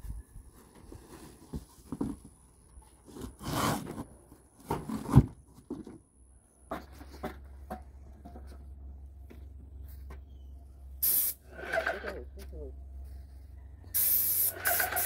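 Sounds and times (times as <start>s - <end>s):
cardboard scraping and crinkling: 0.5s - 6.0s.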